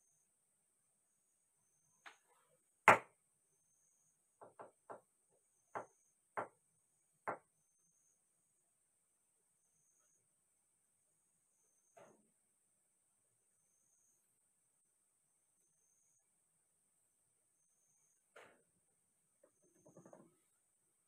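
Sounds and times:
taps on wooden chessboard: 2.9s - 3.1s.

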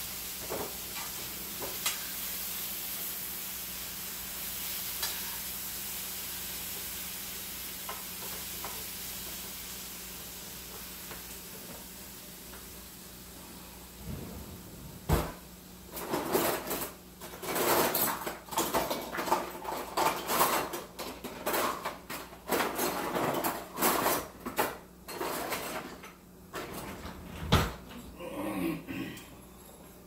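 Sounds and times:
utensils scraping and clattering: 5.0s - 5.5s, 15.9s - 27.2s.

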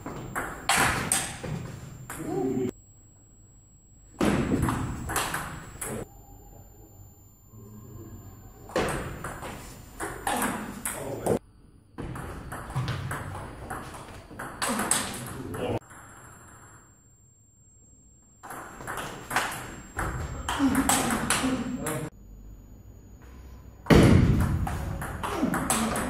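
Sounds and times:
table tennis ball on bats: 0.0s - 2.4s, 4.2s - 6.0s, 8.7s - 11.4s, 18.4s - 22.1s, 23.9s - 26.0s
ball bouncing on table: 8.7s - 11.1s.

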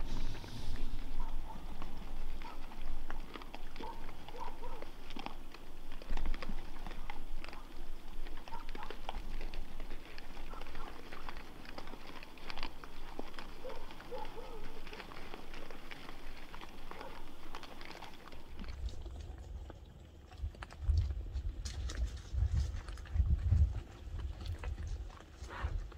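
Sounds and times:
boar grunting: 0.0s - 18.6s
hooves shuffling on gravel: 0.0s - 25.9s
wild boar crunching and chewing: 0.0s - 25.9s.

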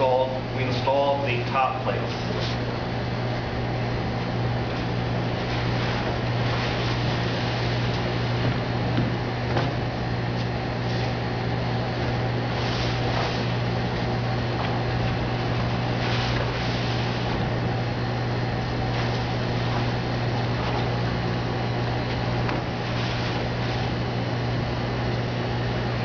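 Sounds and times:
low machinery hum: 0.0s - 26.0s.

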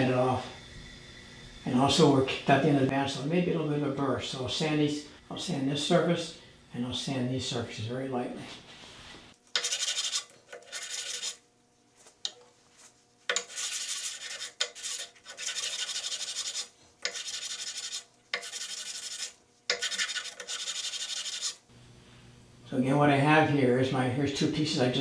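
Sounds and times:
wooden block rubbed on sandpaper: 9.6s - 11.4s, 13.3s - 21.6s.

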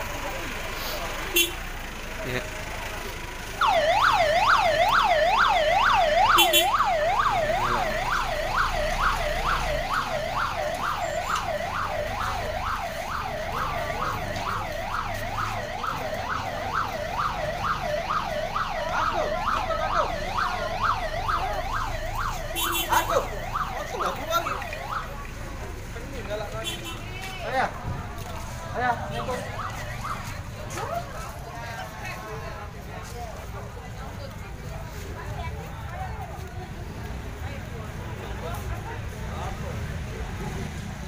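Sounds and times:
siren wailing: 3.6s - 25.2s, 28.9s - 30.4s.

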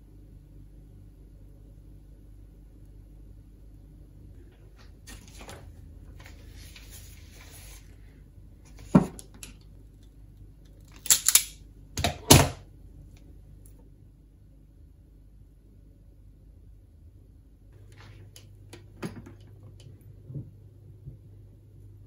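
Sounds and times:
wire cutters snipping: 10.9s - 12.1s.

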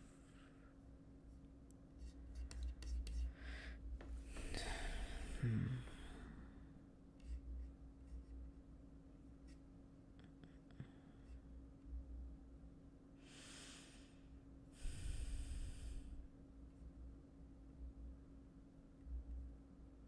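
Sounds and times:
faint steady hum: 0.0s - 20.0s
man breathing: 3.3s - 6.8s, 13.2s - 16.2s.

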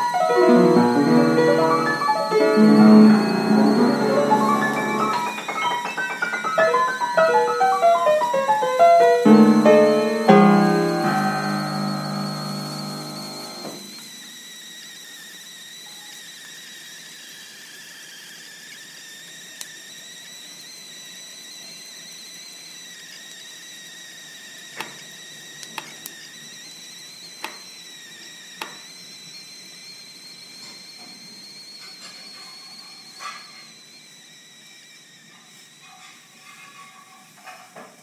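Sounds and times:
high whistling tone: 0.0s - 19.0s, 26.2s - 35.5s.

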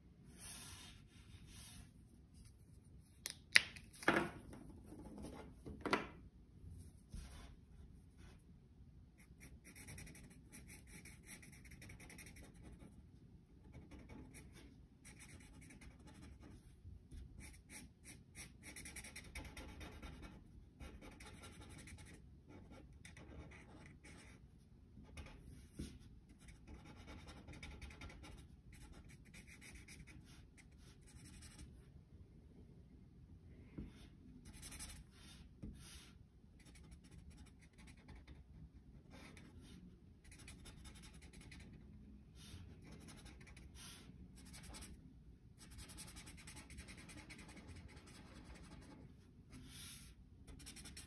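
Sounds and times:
marker rubbing over paper: 0.3s - 1.9s, 33.9s - 38.4s, 42.4s - 45.0s, 45.6s - 51.0s.

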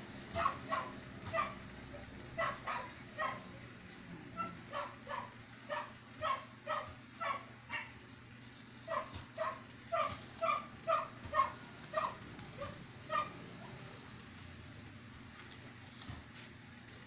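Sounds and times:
dog barking: 0.3s - 3.5s, 4.4s - 8.0s, 8.9s - 13.8s.

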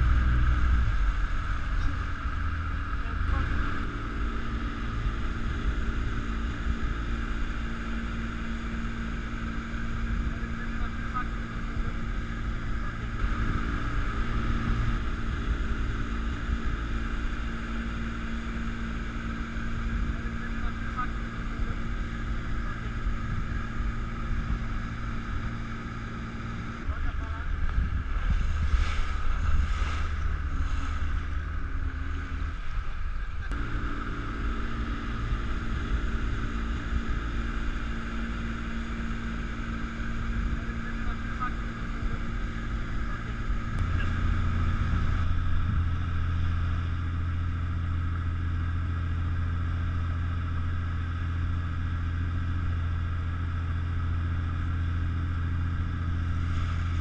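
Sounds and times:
motorboat engine hum: 0.0s - 57.0s
wind buffeting microphone: 9.7s - 48.1s
water rushing and splashing: 28.1s - 32.9s.

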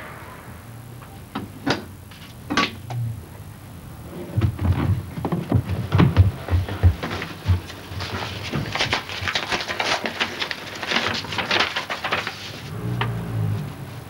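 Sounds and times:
paper rustling and crackling: 7.0s - 13.2s.

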